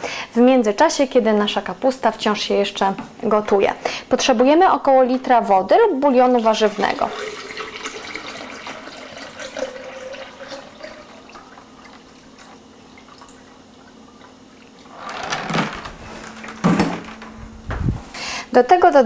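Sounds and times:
water pouring into blender jar: 6.4s - 14.8s.

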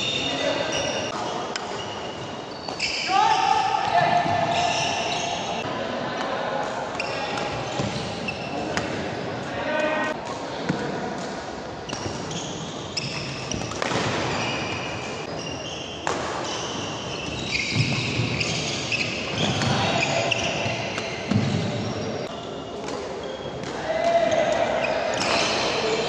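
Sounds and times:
shoes squeaking on wooden floor: 0.0s - 5.6s, 11.9s - 23.6s.

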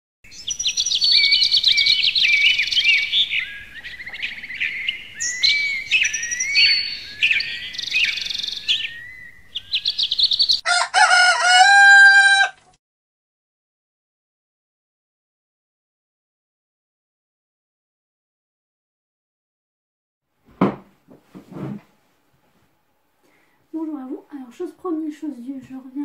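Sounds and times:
birdsong chirps and trills: 0.3s - 10.7s
rooster crowing: 10.6s - 12.8s.

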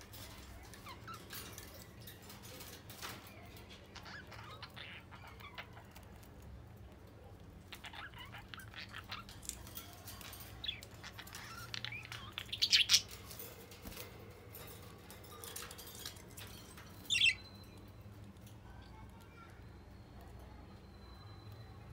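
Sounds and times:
budgerigars chirping: 10.5s - 13.2s, 17.0s - 17.5s.

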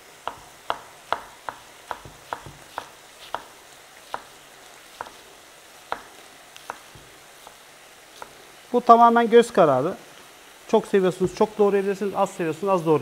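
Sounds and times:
knife chopping on wooden board: 0.2s - 8.4s.

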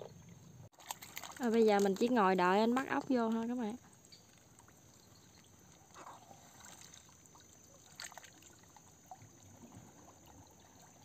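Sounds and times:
water sloshing and trickling: 0.0s - 11.0s.

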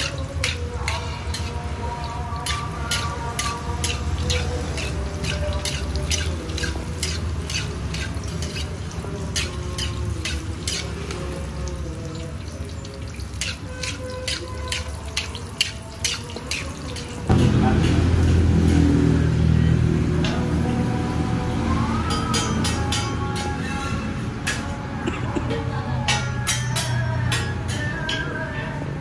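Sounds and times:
oil crackling on griddle: 0.0s - 18.4s
loud low rumble: 17.3s - 21.5s.

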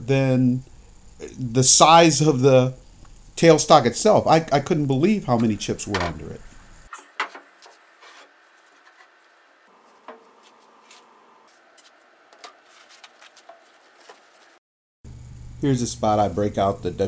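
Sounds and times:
hands rubbing with towels: 11.8s - 14.6s.

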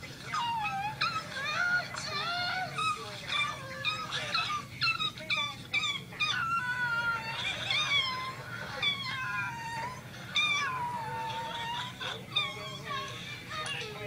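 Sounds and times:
high wavering animal cries: 0.3s - 14.0s.

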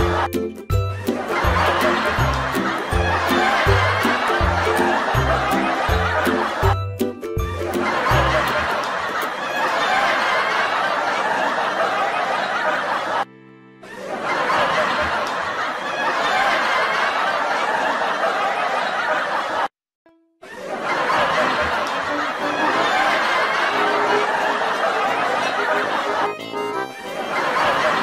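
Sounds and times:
canned audience laughter: 0.0s - 6.8s, 7.6s - 19.7s, 20.4s - 28.0s
background music: 0.0s - 9.0s, 13.3s - 14.1s, 21.5s - 28.0s.

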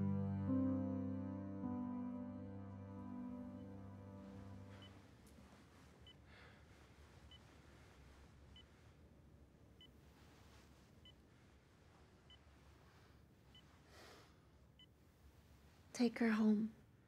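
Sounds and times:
quiet room hiss: 0.0s - 17.0s
patient monitor beeps: 4.7s - 5.0s.

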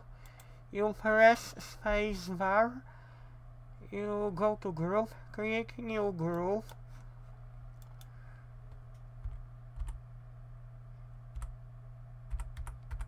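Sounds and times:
steady low hum: 0.0s - 13.0s
computer keyboard typing: 8.7s - 10.0s, 11.3s - 11.5s, 12.3s - 13.0s.

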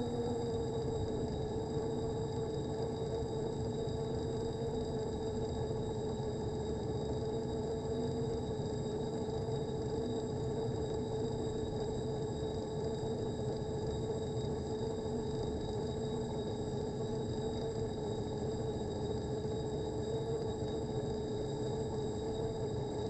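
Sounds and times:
motor hum with whine: 0.0s - 23.0s.

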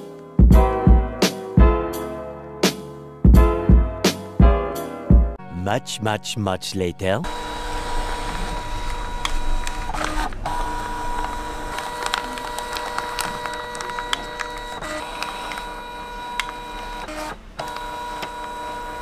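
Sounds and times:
document scanner feeding paper: 7.3s - 19.0s.

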